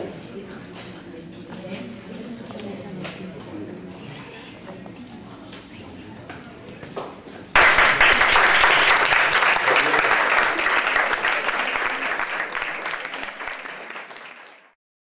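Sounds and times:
audience applause: 7.5s - 14.8s.

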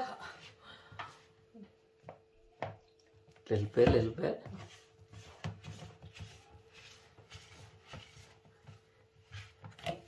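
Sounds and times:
spoon scraping and squishing dough: 2.1s - 10.0s.

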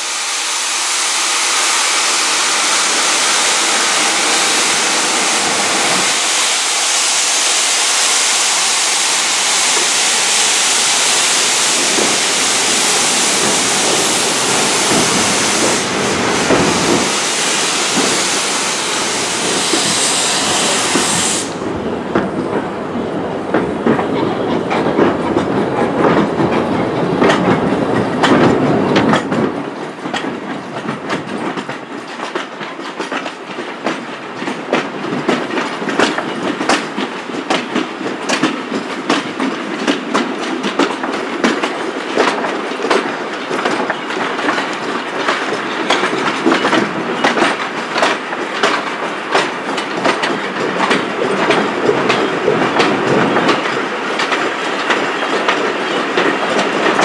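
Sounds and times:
heavy train rumble: 0.0s - 57.0s
train wheels clicking over rail joints: 1.8s - 22.8s, 23.4s - 57.0s.

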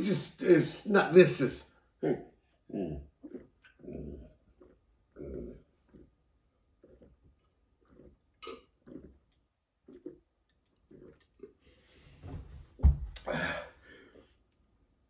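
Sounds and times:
man gulping drink: 1.9s - 14.6s
loud burp: 8.4s - 9.2s.

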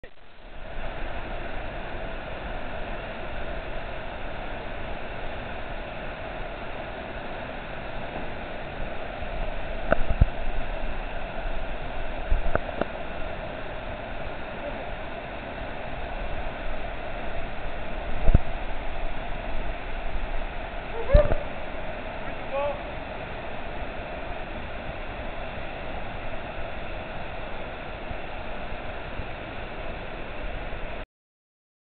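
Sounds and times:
waterfall rushing: 0.2s - 31.0s
water splashes: 0.5s - 31.0s
person speaking: 22.3s - 22.9s.

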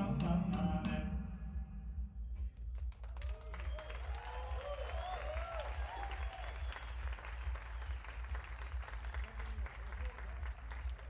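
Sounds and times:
audience applauding: 2.7s - 11.0s
cheering and whoops: 3.3s - 7.2s.

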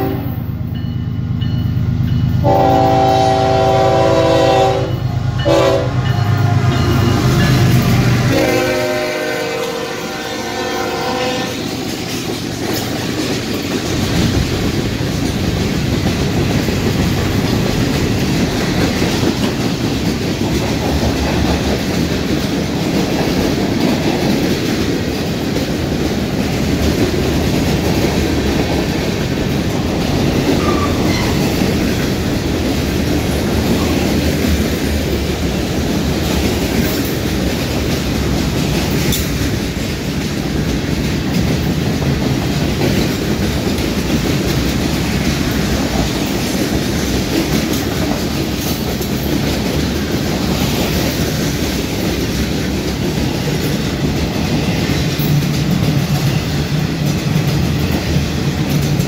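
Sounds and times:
locomotive air horn blasts: 0.0s - 0.4s, 2.4s - 6.7s, 8.1s - 11.6s
train wheels rattling on rails: 0.0s - 59.0s.

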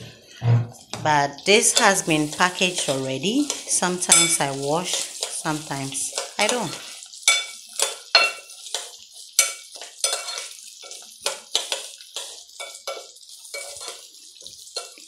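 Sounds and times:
metal spoon scraping pot: 9.4s - 14.0s.

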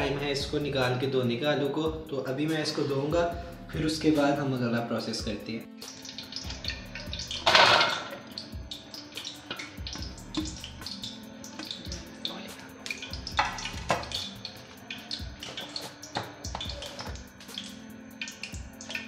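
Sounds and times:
wet taps and drips: 5.8s - 19.0s.

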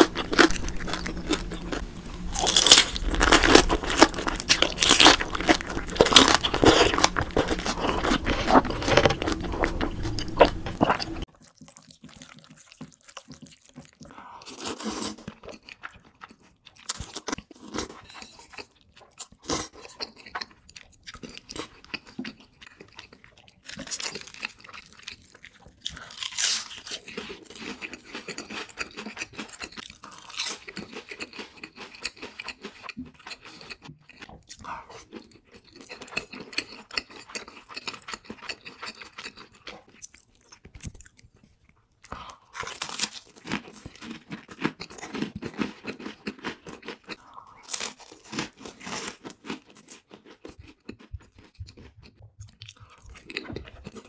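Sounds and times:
noodles being slurped: 0.0s - 16.2s
crunching bites of fried food: 0.0s - 41.5s, 42.1s - 54.0s.

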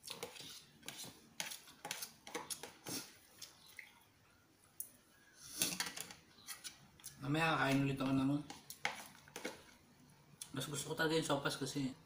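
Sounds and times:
spoon scraping in a bowl: 0.0s - 3.1s, 5.4s - 6.9s.

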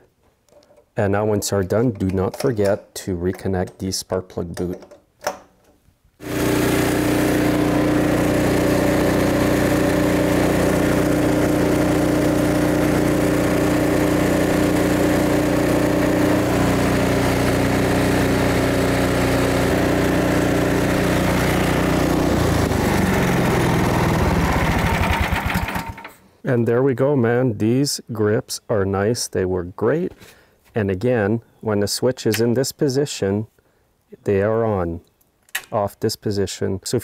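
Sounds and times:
snowblower engine running: 6.2s - 26.1s.

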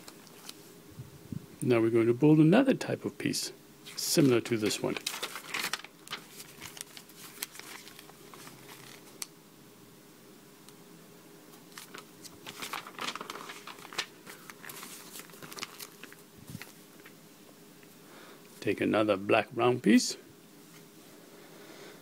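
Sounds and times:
paper pages rustling: 0.0s - 0.7s, 3.9s - 9.3s, 11.7s - 17.1s.

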